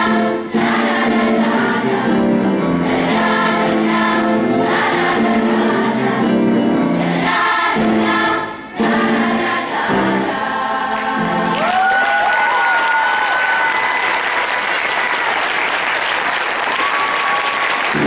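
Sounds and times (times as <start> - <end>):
children's choir singing: 0.0 - 12.0
audience applause: 10.9 - 18.0
audience cheering and whooping: 11.3 - 18.0.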